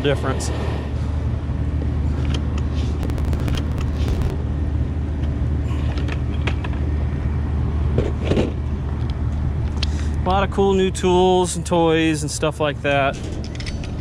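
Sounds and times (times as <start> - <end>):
low machinery hum: 0.6 - 13.1.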